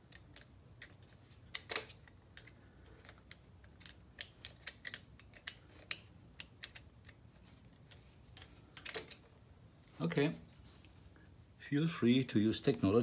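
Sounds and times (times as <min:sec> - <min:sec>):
screwdriver turning clamp screw clicks: 0:01.5 - 0:07.2.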